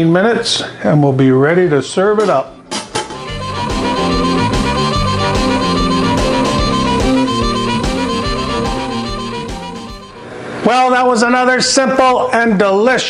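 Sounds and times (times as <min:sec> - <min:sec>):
instrumental music with steady beat: 0:03.0 - 0:10.3.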